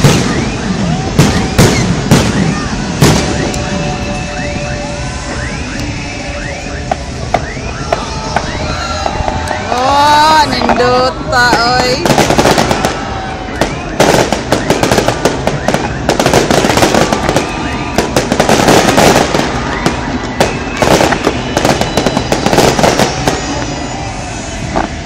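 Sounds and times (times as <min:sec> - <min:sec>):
fireworks bursting: 0:00.0 - 0:25.0
fireworks crackling: 0:00.0 - 0:25.0.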